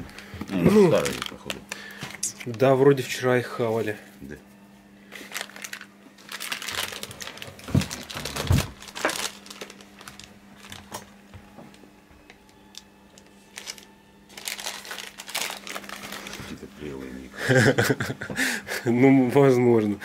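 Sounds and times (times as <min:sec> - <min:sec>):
crinkly packaging crumpled: 0:00.1 - 0:02.8, 0:05.1 - 0:11.3, 0:12.7 - 0:16.9.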